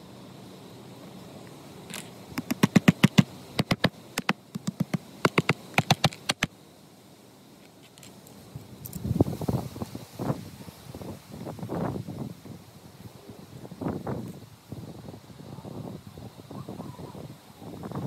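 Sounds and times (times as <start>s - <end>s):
rustling: 1.4s - 6.5s
sharp loud taps: 2.4s - 6.5s.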